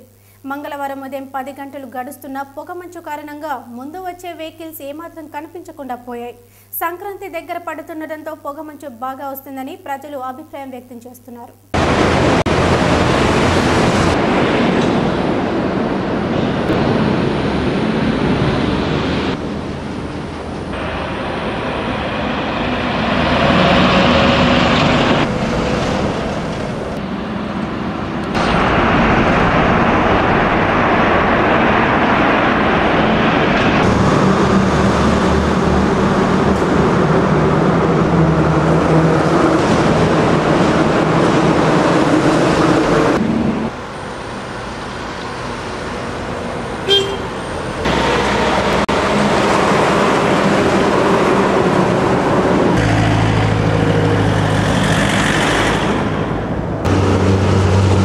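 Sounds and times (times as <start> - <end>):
vehicles passing: 11.8 - 58.0.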